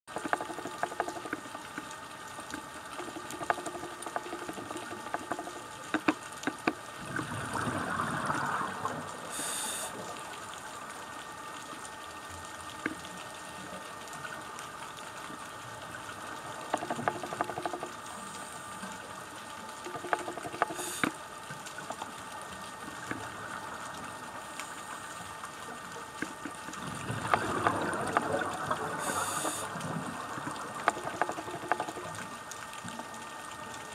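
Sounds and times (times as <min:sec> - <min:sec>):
underwater background: 0:00.1 - 0:33.9
exhaled bubbles rushing: 0:07.0 - 0:10.9, 0:26.7 - 0:32.2
regulator hissing: 0:09.3 - 0:10.0, 0:29.0 - 0:29.7.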